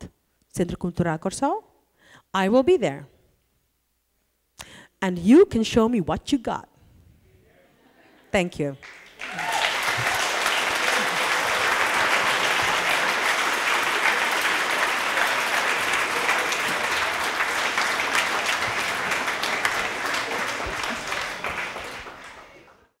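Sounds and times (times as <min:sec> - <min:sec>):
audience applauding: 0:08.8 - 0:23.0.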